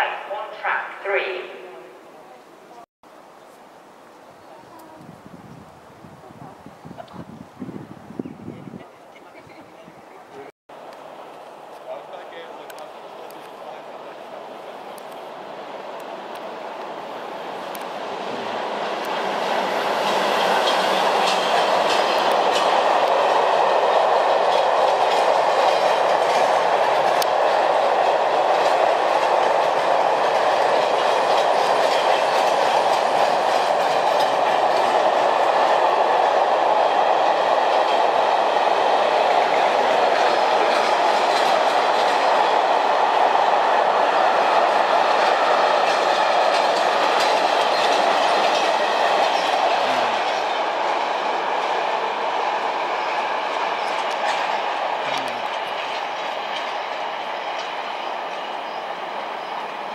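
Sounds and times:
freight train rolling rumble: 4.4 - 59.9
wheels clicking over rail joints: 17.7 - 43.8, 44.4 - 58.8.

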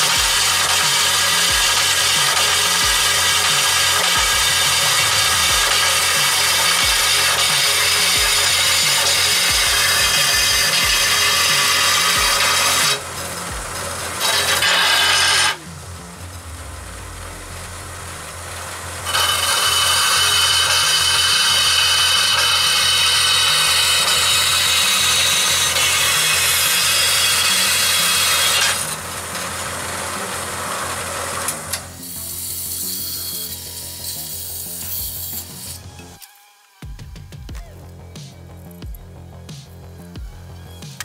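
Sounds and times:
saw blade rasping through metal: 0.0 - 15.7, 19.0 - 29.5, 30.6 - 35.9
band saw motor hum: 0.0 - 36.8.

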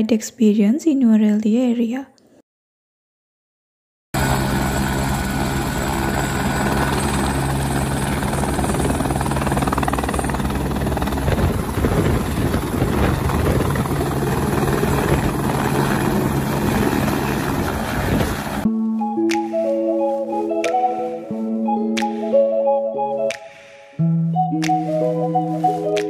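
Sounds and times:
helicopter engine and rotor: 4.2 - 18.7.

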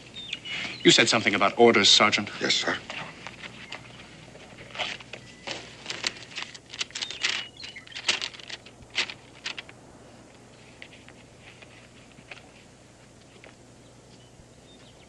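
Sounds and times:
papers rustling and crackling: 2.8 - 13.6.

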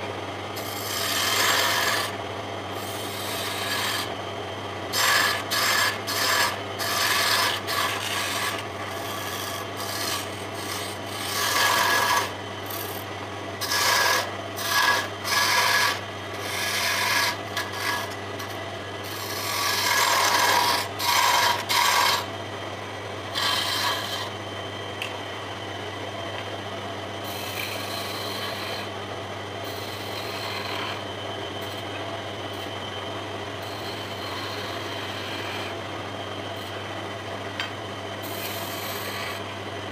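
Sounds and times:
lathe humming: 0.0 - 39.9
parting tool scraping wood: 4.9 - 22.3.

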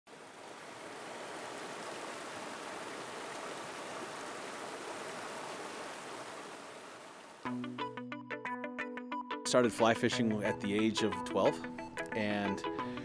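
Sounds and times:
river rushing over rocks: 0.1 - 7.4.

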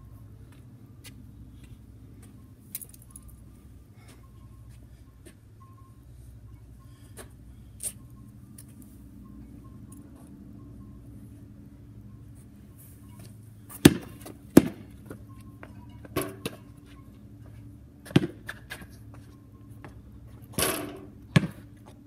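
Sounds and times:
basketball bouncing on concrete: 13.8 - 16.6, 18.0 - 18.9, 21.3 - 21.7.

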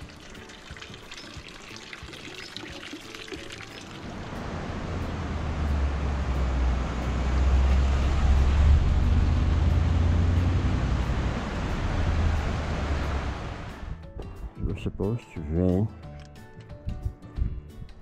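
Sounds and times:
vehicle driving past: 4.0 - 14.0.

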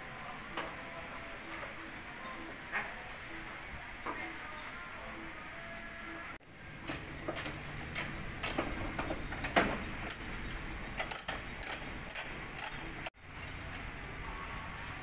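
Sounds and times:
clicks and clacks of hand work: 6.8 - 13.2.

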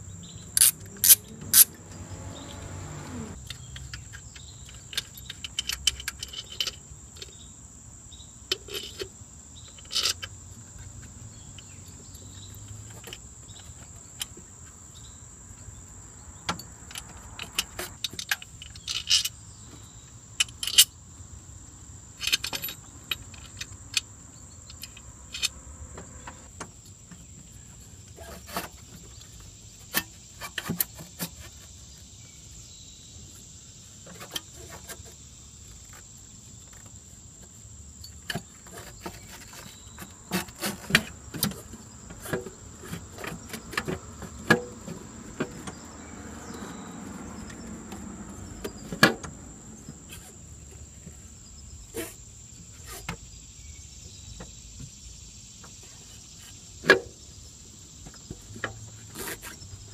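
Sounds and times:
metallic clicks and clinks: 3.3 - 7.3.

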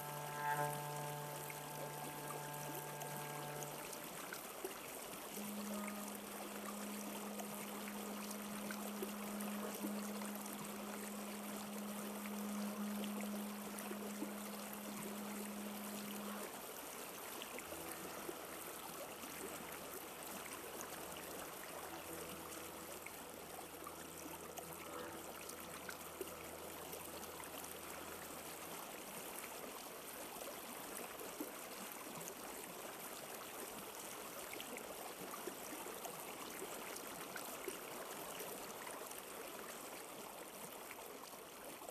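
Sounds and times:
deep layered drone: 0.0 - 4.2, 5.2 - 16.8, 17.4 - 28.8
low steady hum: 0.0 - 32.2
running water: 0.0 - 41.9.

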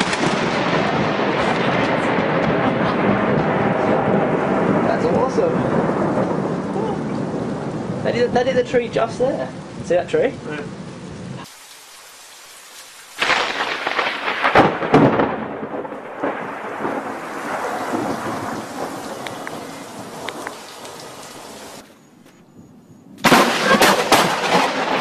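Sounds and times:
storm noise: 0.0 - 11.5, 13.0 - 21.8, 22.5 - 25.0
thunder rolling: 0.0 - 11.5, 13.2 - 21.8, 22.5 - 25.0.

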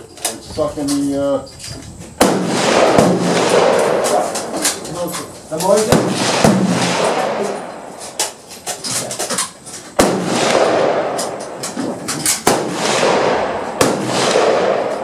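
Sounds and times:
faint gunshots: 2.2 - 5.1, 5.7 - 8.0, 10.0 - 15.0
rifle shots echoing: 2.2 - 8.4, 10.0 - 15.0.

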